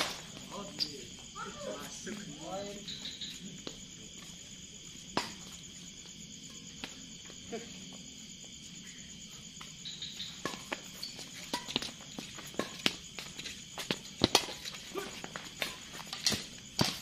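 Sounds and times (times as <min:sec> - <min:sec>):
crickets chirring: 0:00.0 - 0:17.0
racket hitting shuttlecock: 0:14.2 - 0:17.0.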